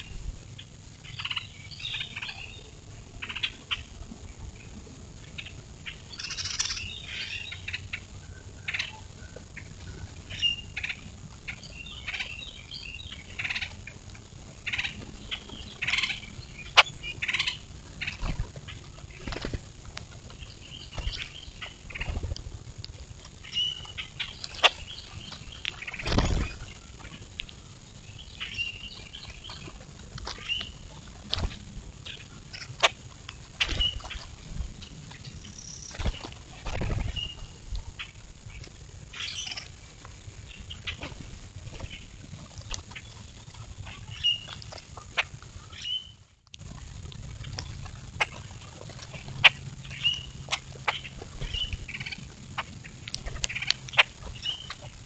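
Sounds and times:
birds calling: 0.0s - 14.0s, 14.6s - 22.4s, 23.2s - 46.2s, 47.4s - 55.0s
wings flapping: 18.0s - 22.5s, 24.4s - 27.1s, 31.2s - 31.7s, 32.8s - 35.2s, 35.8s - 37.6s.

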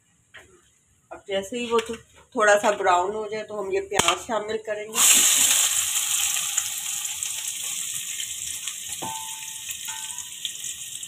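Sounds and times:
onions sizzling in oil: 4.9s - 11.0s.

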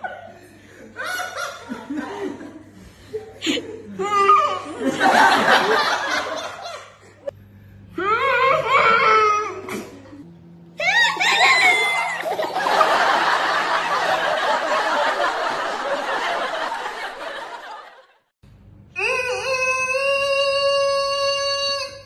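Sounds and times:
crowd laughing: 0.0s - 7.3s, 10.9s - 18.3s.

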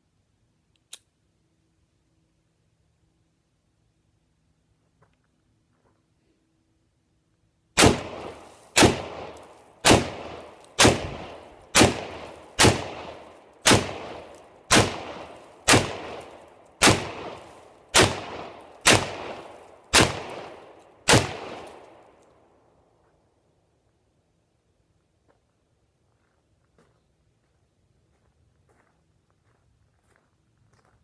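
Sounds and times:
pistol shots: 7.8s - 22.1s.

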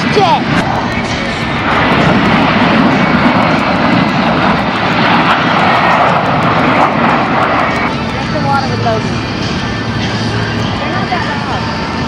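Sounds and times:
military jets flying past: 0.0s - 12.0s.

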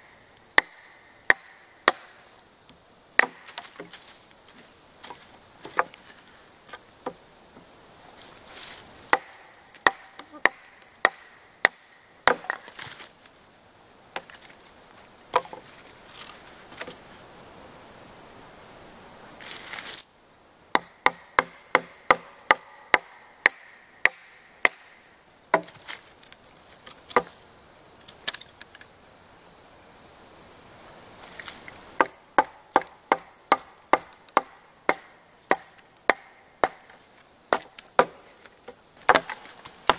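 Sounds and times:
blade chopping wood: 0.6s - 2.2s, 3.2s - 4.1s, 9.1s - 13.1s, 15.3s - 15.7s, 20.8s - 26.0s, 27.1s - 27.4s, 32.0s - 39.9s.

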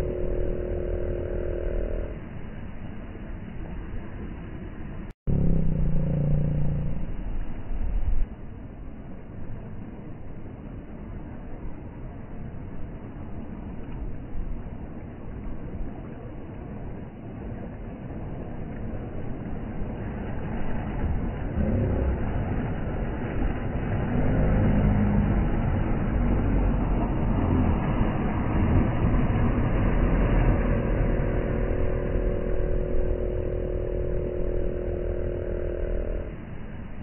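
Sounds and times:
outboard motors running: 0.0s - 2.4s, 5.3s - 7.5s, 20.0s - 37.0s
steady droning hum: 0.0s - 37.0s.

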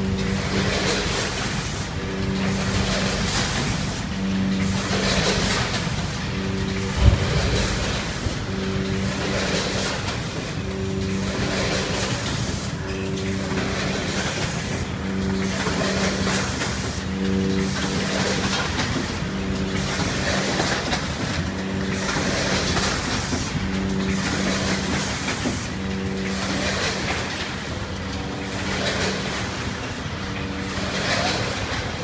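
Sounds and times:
mechanical clatter and hiss: 0.0s - 32.0s
machine low hum: 4.1s - 11.9s.

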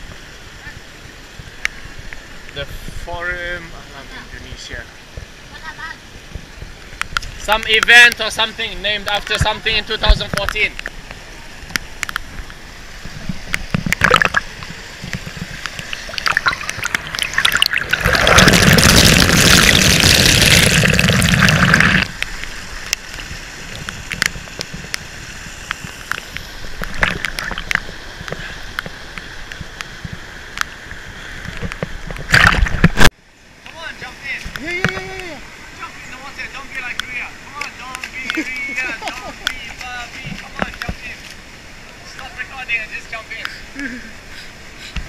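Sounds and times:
water rushing over rock: 0.0s - 45.0s
clicks and knocks in stream: 10.1s - 33.2s, 39.1s - 41.4s.

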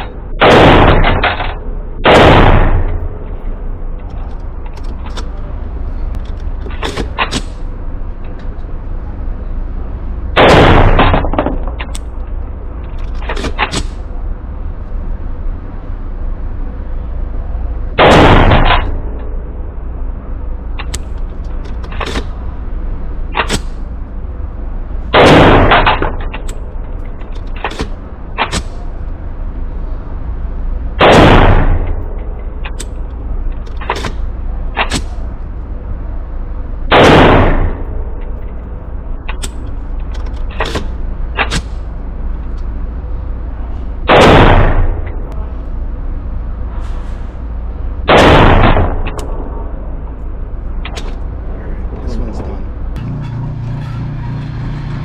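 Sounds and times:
rapid pistol shots with echo: 0.4s - 3.0s, 18.0s - 18.9s.

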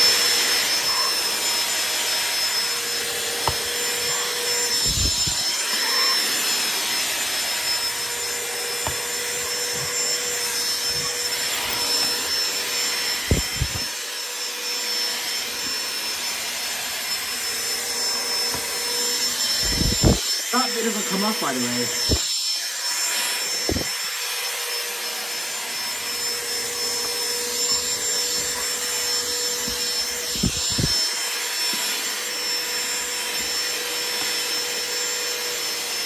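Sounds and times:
handheld vacuum whine: 0.0s - 36.0s.

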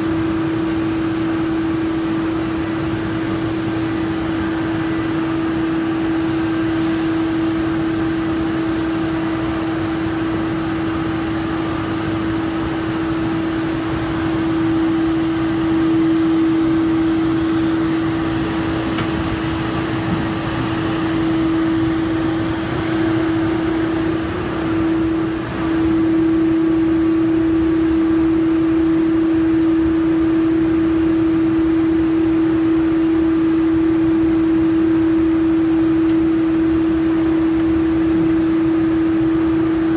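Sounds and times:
factory machinery humming: 0.0s - 39.9s
even hiss: 6.2s - 11.0s.

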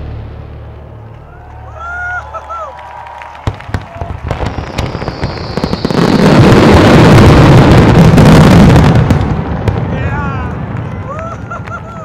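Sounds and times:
fireworks crackling: 0.0s - 12.0s
falling firework whistle: 1.3s - 9.2s.

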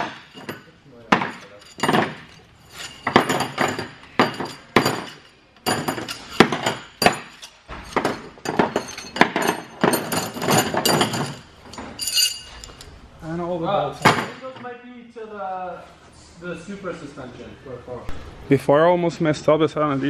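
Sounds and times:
steel bolts clinking: 0.0s - 12.9s.

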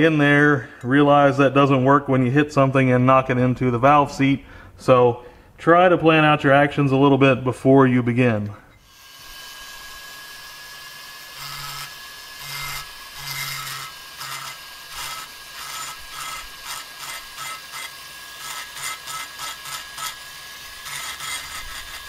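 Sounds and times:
rotary tool whining: 8.7s - 22.0s
bit grinding metal: 10.7s - 22.0s.

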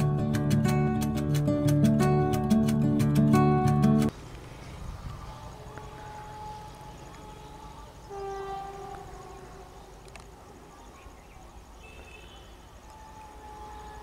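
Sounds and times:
locomotive horn blast: 5.5s - 10.0s, 12.2s - 14.0s.

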